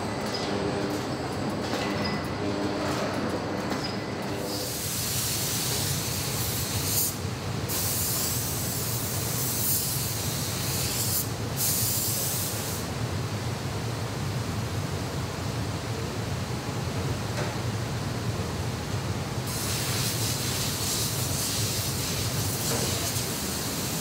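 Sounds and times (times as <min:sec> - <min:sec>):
paint spray gun hissing: 0:04.5 - 0:12.8, 0:19.5 - 0:24.0.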